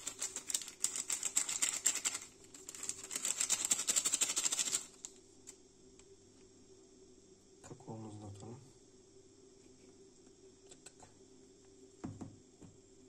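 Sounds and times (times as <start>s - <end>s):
low steady hum: 4.8s - 13.0s.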